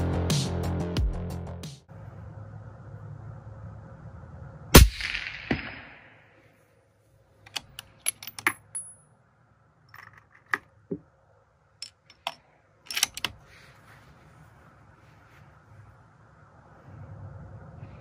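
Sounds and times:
rifle bolt clicks and clacks: 7.5s - 8.6s, 11.8s - 13.4s.

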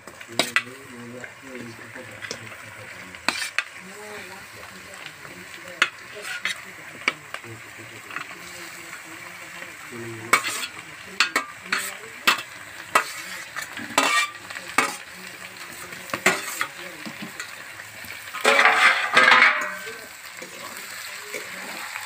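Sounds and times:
chicken sizzling in a pan: 0.0s - 22.0s
metal spatula scraping steel plate: 3.2s - 3.7s, 5.8s - 6.7s, 10.2s - 15.0s, 16.2s - 16.8s, 18.3s - 19.9s.

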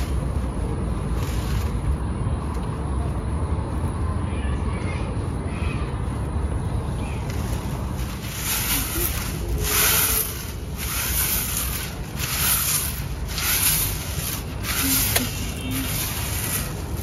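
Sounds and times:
steady low rumble: 0.0s - 17.0s
broom sweeping dirt: 7.2s - 17.0s.

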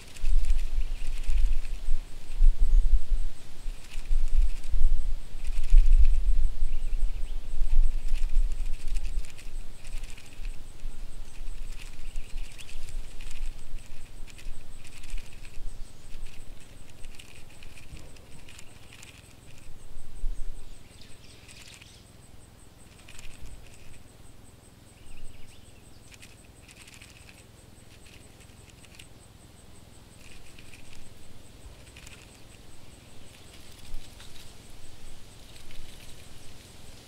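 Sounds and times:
scratchy pattering clicks: 0.0s - 1.8s, 3.7s - 4.7s, 5.4s - 6.2s, 7.9s - 19.7s, 22.8s - 24.0s, 26.1s - 29.1s, 30.2s - 32.7s, 35.5s - 36.3s.

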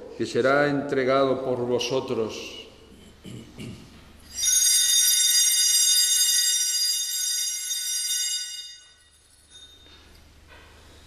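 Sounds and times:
high ringing bells: 4.2s - 10.2s.

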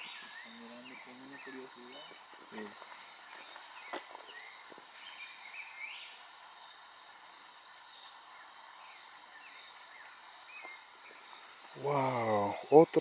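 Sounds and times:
bird chirps: 0.0s - 13.0s
insects droning: 0.0s - 13.0s.

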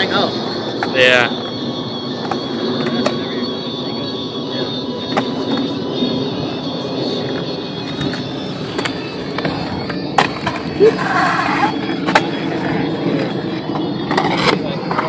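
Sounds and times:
skateboard wheels rolling on concrete: 7.3s - 15.0s
skateboard clacks: 8.1s - 13.4s, 14.0s - 15.0s.

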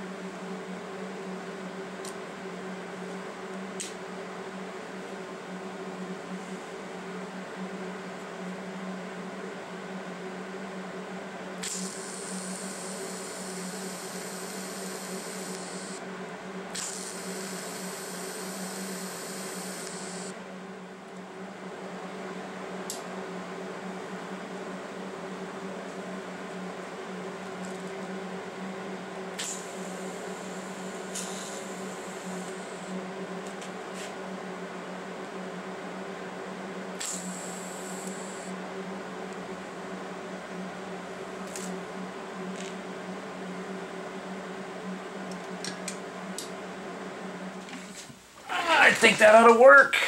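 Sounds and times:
electrical hum: 0.0s - 50.0s
welding arc hissing: 11.6s - 16.0s, 16.7s - 20.3s, 29.4s - 32.9s, 37.0s - 38.5s.

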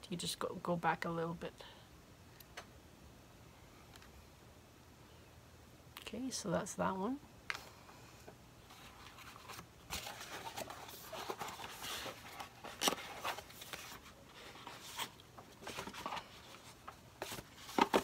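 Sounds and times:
cardboard boxes rustling and scraping: 8.6s - 18.0s.

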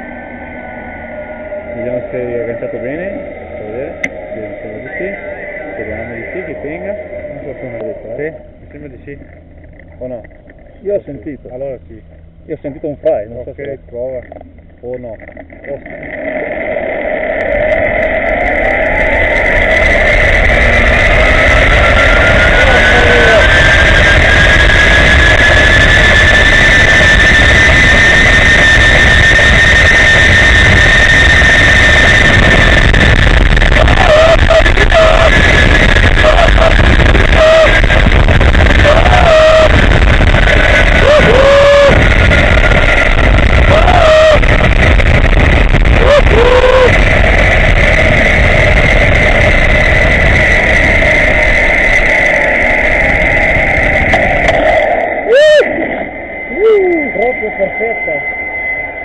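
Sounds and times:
zip-line pulleys whining: 0.0s - 8.4s, 15.8s - 58.2s
wind rumble on microphone: 0.0s - 57.4s
zip line pulley whirring: 15.4s - 38.1s.

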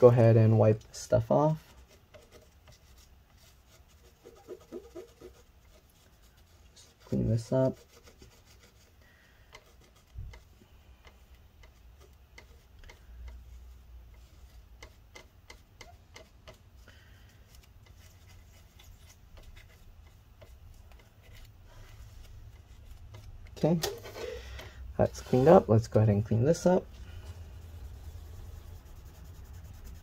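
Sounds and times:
paper towel rubbing: 1.5s - 8.9s, 25.0s - 25.9s, 26.5s - 30.0s.

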